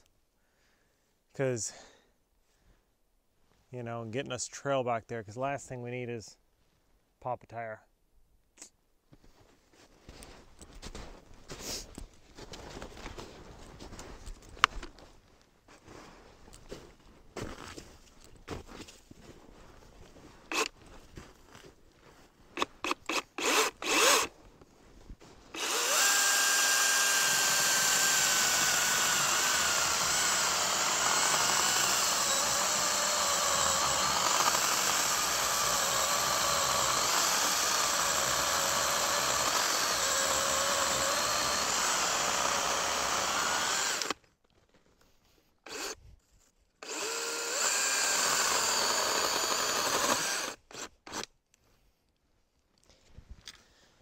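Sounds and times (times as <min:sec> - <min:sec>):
electric chainsaw cutting a log: 0:20.5 - 0:20.7, 0:22.6 - 0:24.3, 0:25.5 - 0:44.2, 0:45.7 - 0:46.0, 0:46.8 - 0:51.3.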